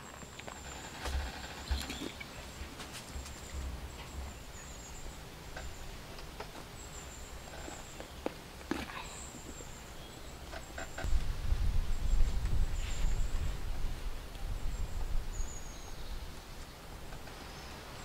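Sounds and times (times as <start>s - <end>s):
soft rustles: 0.0s - 4.3s, 12.3s - 13.9s.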